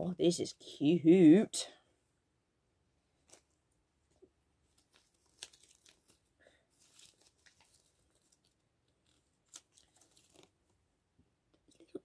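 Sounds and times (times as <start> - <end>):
paper crinkling and rustling: 3.2 - 3.6, 4.6 - 10.8.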